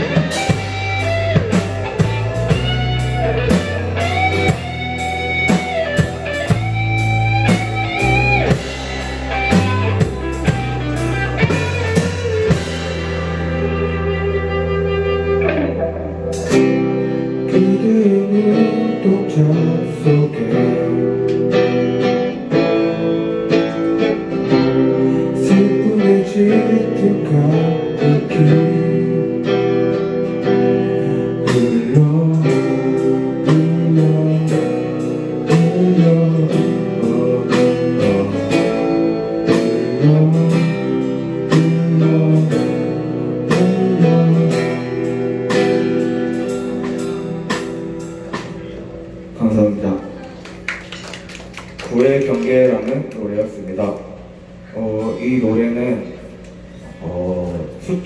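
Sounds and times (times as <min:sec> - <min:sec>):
drum kit: 0:00.0 - 0:55.2
electric bass: 0:00.0 - 0:58.0
electric guitars: 0:00.0 - 0:58.0
person singing: 0:08.0 - 0:21.4, 0:24.5 - 0:45.2.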